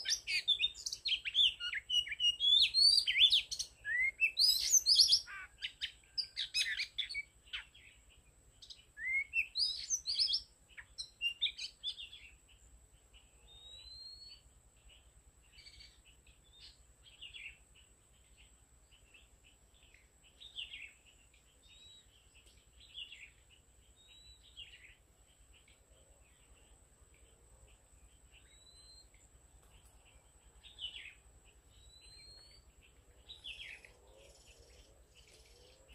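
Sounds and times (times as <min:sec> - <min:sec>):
bird singing whistles: 0:00.0 - 0:07.7, 0:08.6 - 0:12.2, 0:13.5 - 0:14.4, 0:24.0 - 0:24.9, 0:28.4 - 0:29.1, 0:31.8 - 0:32.6.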